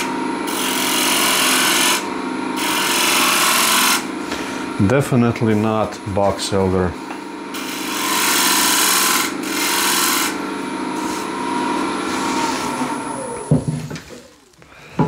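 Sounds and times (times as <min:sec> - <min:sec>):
tool scraping spinning wooden bowl: 0:00.0 - 0:15.0
wood lathe humming: 0:00.0 - 0:15.0.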